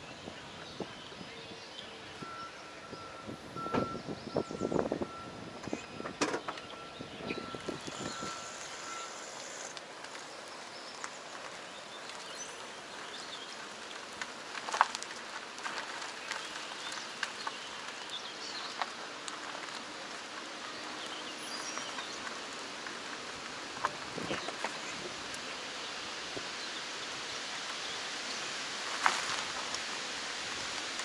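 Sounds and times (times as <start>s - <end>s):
stones crackling and popping: 5.7s - 31.0s
tyre rolling over gravel: 6.4s - 31.0s.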